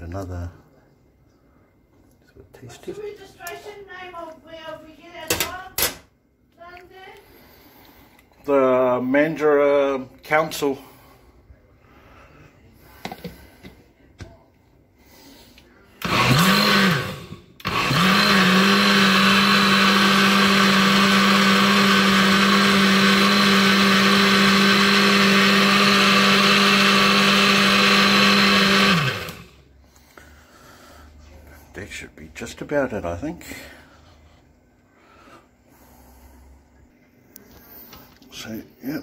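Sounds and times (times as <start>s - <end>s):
blender motor hum: 16.0s - 29.7s.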